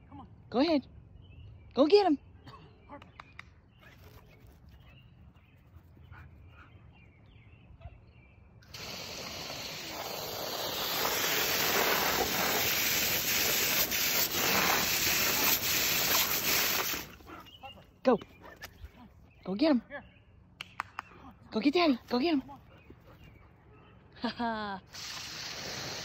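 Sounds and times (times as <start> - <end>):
hose nozzle spraying water: 8.7 - 17.2, 25.0 - 26.0.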